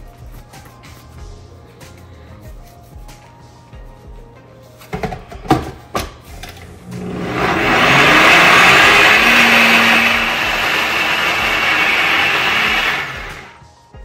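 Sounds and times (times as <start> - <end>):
blender motor running: 6.7 - 13.6.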